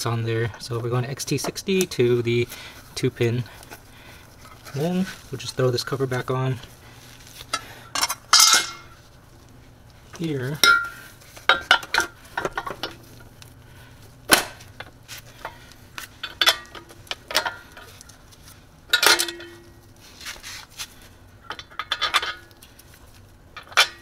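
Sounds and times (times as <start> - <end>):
metallic clinks and knocks: 10.6 - 13.0, 18.9 - 19.8.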